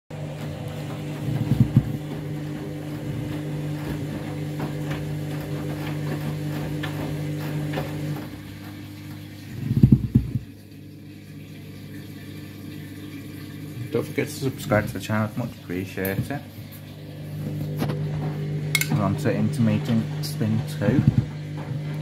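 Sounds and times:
washing machine spinning: 0:00.1 - 0:22.0
load knocking and thumping: 0:00.9 - 0:02.3, 0:09.7 - 0:10.5.

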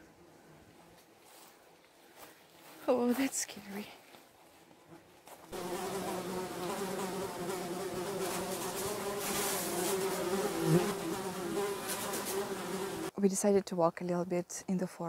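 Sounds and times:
flying insects buzzing: 0:05.0 - 0:13.1.

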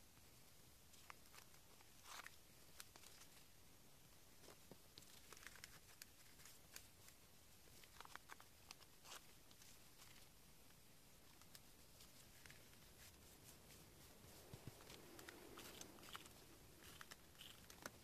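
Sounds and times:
paper rustling and crinkling: 0:04.4 - 0:10.4, 0:11.2 - 0:18.0.

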